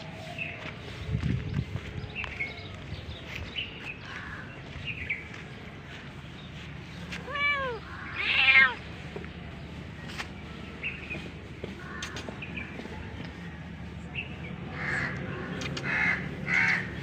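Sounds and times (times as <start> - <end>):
cat meowing: 7.2 - 8.8.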